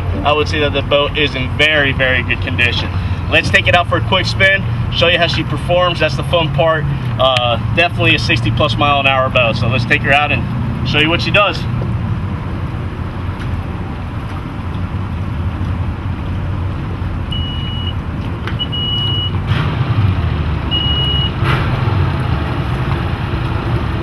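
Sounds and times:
outboard motors idling: 0:00.0 - 0:17.8.

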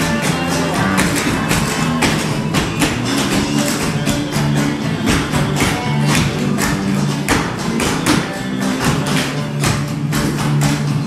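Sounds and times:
music: 0:00.0 - 0:11.0
tap shoes clicking on stage: 0:00.0 - 0:11.0.

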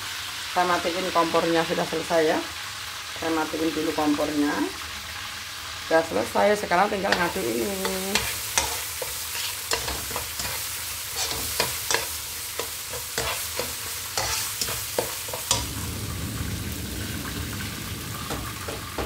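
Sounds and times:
frying sizzle: 0:00.0 - 0:19.0
spatula scraping wok: 0:07.0 - 0:15.7.

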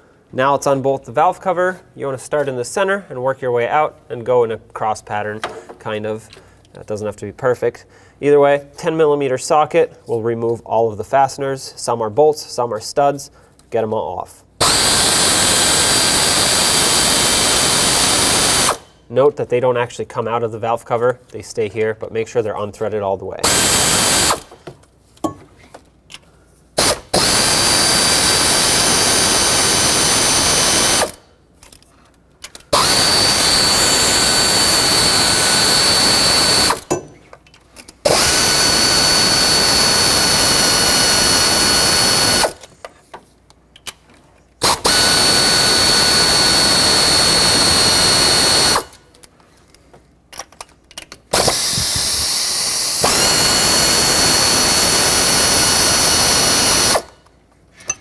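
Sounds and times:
power tool whining: 0:14.6 - 0:19.0, 0:23.4 - 0:24.6, 0:26.8 - 0:31.2, 0:32.7 - 0:37.0, 0:38.0 - 0:42.6, 0:44.6 - 0:49.0, 0:51.3 - 0:57.2.

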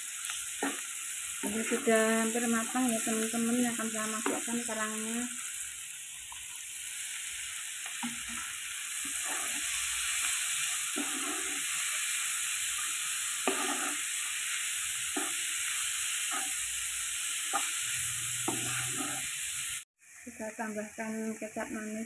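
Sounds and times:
oil sizzling in a wok: 0:00.0 - 0:22.0
spatula scraping a pan: 0:08.0 - 0:12.2, 0:12.8 - 0:14.4, 0:15.1 - 0:16.7, 0:17.5 - 0:19.5.

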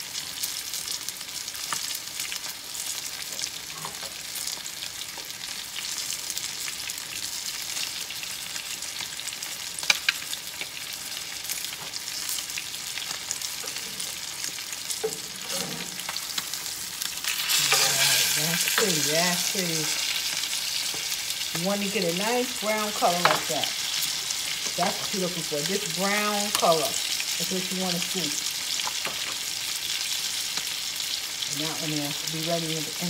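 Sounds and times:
fish frying in a skillet: 0:00.0 - 0:33.0
spatula working in a pan: 0:13.1 - 0:21.6, 0:22.9 - 0:25.2.

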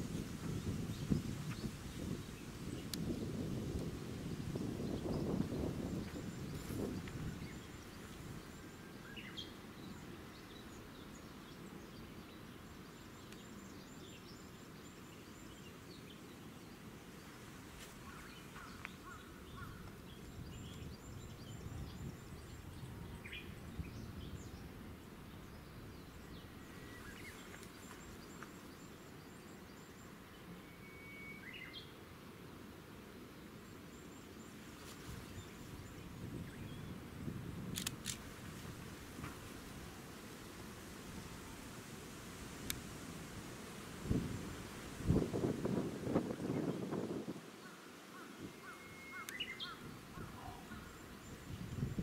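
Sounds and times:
faint bird chirps: 0:25.4 - 0:32.0, 0:47.6 - 0:52.0.

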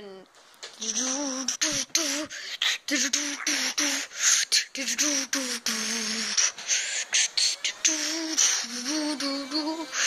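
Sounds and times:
person beatboxing: 0:00.7 - 0:08.0.

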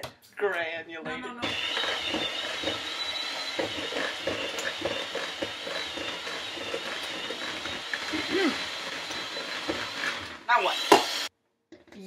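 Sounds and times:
utensil scraping in mixing bowl: 0:01.4 - 0:10.4.

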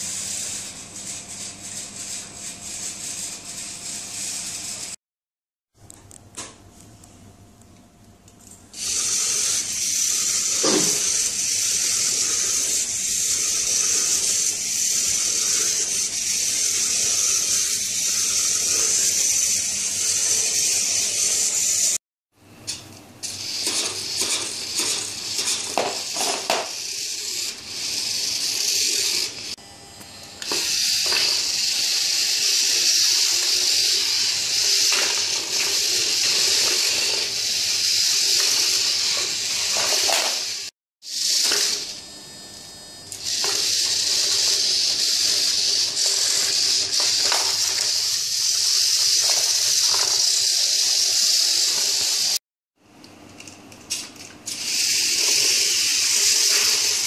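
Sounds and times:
electric gear motors whirring: 0:08.8 - 0:22.0, 0:23.2 - 0:42.1, 0:43.1 - 0:52.4, 0:54.4 - 0:57.0.

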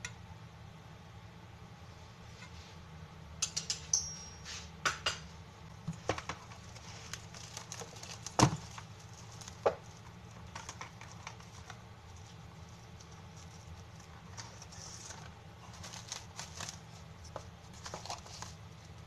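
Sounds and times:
metal spoon clinking on steel bowl: 0:03.4 - 0:04.4.

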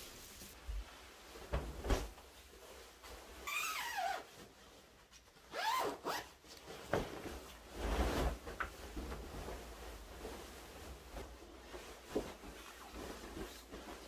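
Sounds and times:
fabric rustling: 0:00.0 - 0:14.0
zipper pulled: 0:05.5 - 0:06.4.

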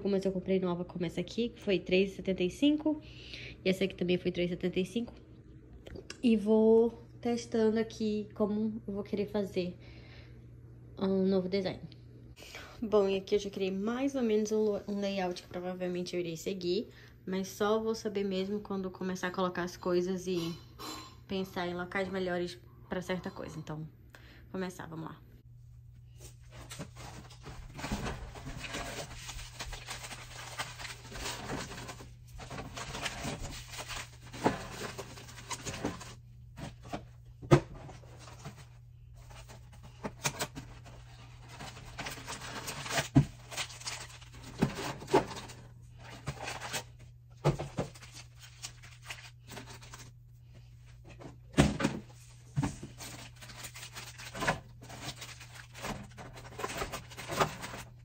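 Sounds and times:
steady low hum: 0:19.6 - 0:58.0
packaging rustling: 0:26.4 - 0:37.0, 0:37.8 - 0:50.2, 0:52.6 - 0:58.0
items knocking into plastic bins: 0:47.4 - 0:48.2, 0:51.1 - 0:53.4.

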